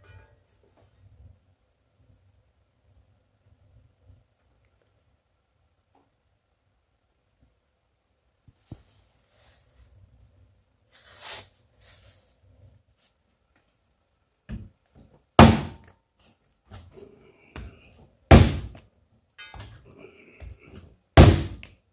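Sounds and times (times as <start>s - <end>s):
clay slammed on workbench: 15.4s - 15.9s, 18.3s - 18.8s, 21.2s - 21.7s.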